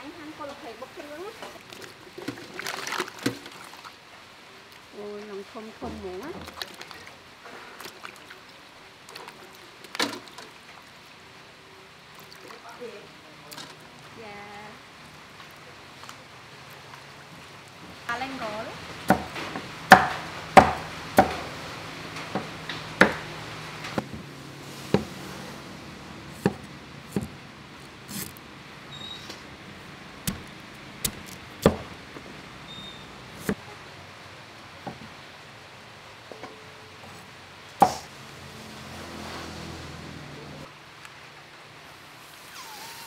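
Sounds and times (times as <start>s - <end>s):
cleaver chopping on wooden block: 19.1s - 21.4s, 22.4s - 23.2s, 26.4s - 27.4s, 30.3s - 31.9s, 37.8s - 38.1s.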